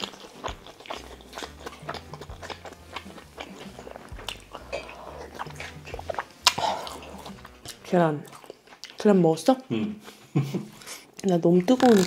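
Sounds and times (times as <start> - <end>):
wet mouth clicks and smacks: 0.0 - 7.8
person chewing food: 0.0 - 9.1.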